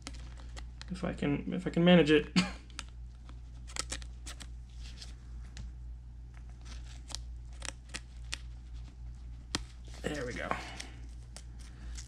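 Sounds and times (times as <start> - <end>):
plastic sleeve clicks and rustles: 0.0 - 0.9
steady low hum: 0.0 - 12.0.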